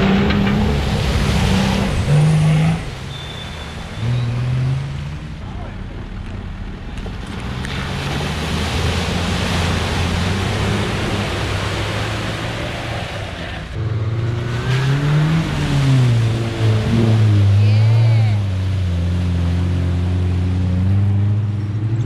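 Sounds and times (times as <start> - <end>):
engine revving in water: 0.0 - 5.5, 7.0 - 22.0
mud splashing and churning: 6.9 - 13.6.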